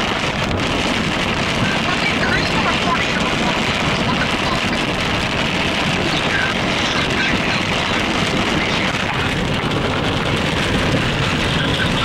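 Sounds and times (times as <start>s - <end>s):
rain hitting car windows: 0.0s - 12.0s
tyres on wet road: 0.0s - 12.0s
wind: 0.0s - 12.0s.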